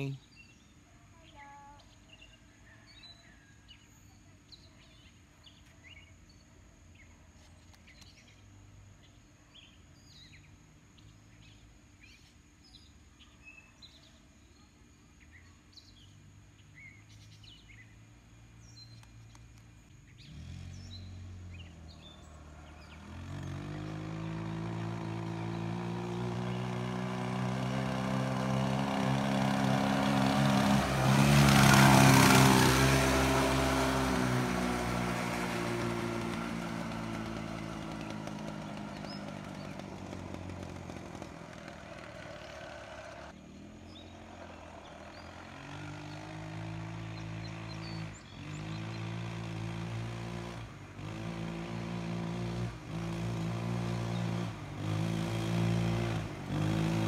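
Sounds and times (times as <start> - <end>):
birds chirping: 0.0 - 51.1, 52.9 - 57.0
go-kart engine passing: 20.1 - 57.0.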